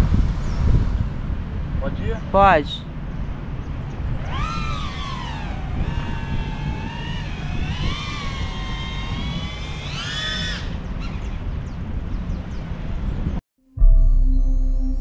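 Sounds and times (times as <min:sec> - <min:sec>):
drone propellers whining: 0:03.9 - 0:11.7.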